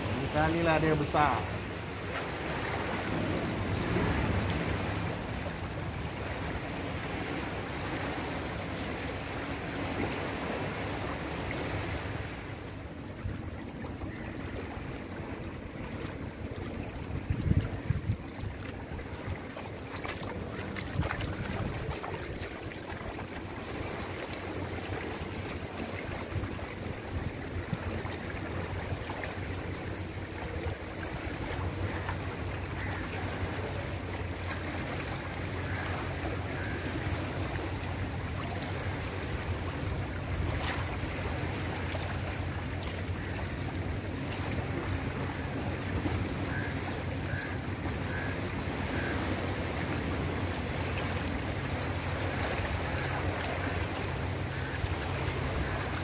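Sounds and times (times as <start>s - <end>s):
small waves washing: 0.0s - 56.0s
wind on microphone: 17.0s - 19.5s, 20.4s - 22.6s
thin high whine: 34.3s - 56.0s.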